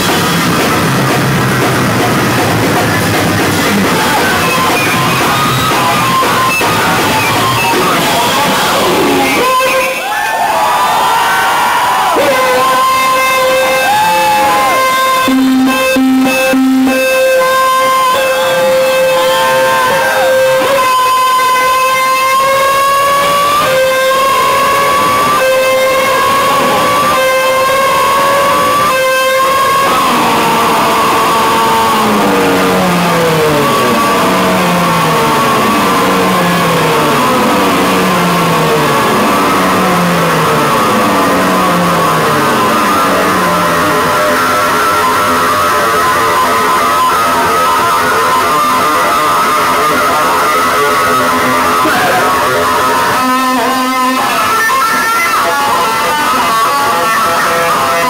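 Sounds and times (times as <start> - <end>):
loud electric bass: 0.0 - 9.6, 22.0 - 46.3.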